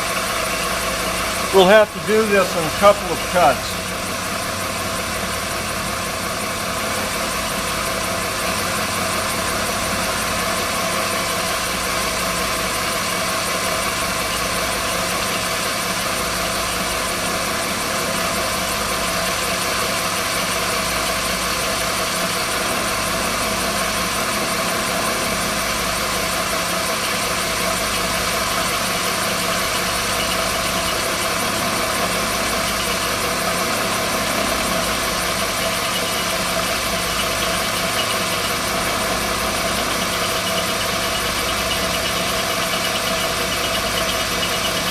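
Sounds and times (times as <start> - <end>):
milling machine cutting metal: 0.0 - 44.9.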